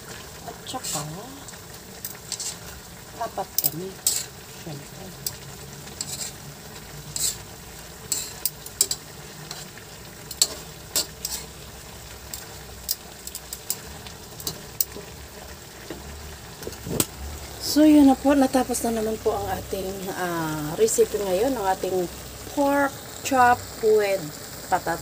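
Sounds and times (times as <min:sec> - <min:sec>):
food sizzling: 0:00.0 - 0:25.0
metal tongs clacking on wok: 0:02.0 - 0:02.7, 0:03.4 - 0:05.4, 0:06.0 - 0:06.4, 0:07.1 - 0:07.5, 0:08.1 - 0:11.6, 0:12.2 - 0:15.2.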